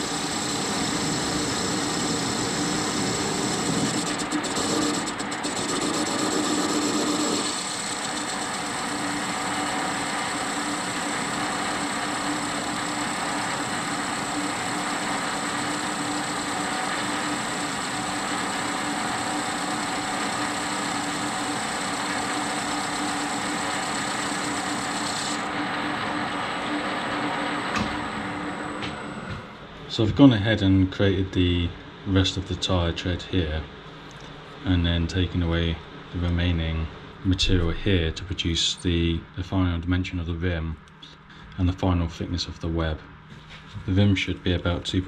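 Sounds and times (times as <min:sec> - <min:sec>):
high whine: 0:00.0 - 0:16.6, 0:33.5 - 0:41.2
metal lathe running: 0:00.0 - 0:29.4.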